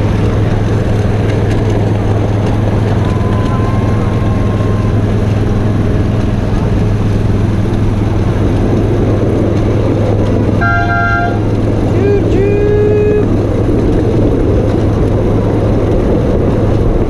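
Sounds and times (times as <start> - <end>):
low rumble of train on track: 0.0 - 17.0
miniature train horn tooting: 10.6 - 11.6.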